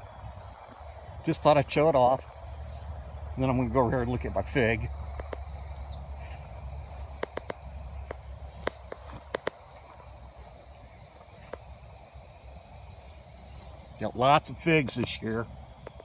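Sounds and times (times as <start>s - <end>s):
high-pitched insect drone: 0.0s - 16.0s
sharp clicks: 5.1s - 5.5s, 7.1s - 9.6s.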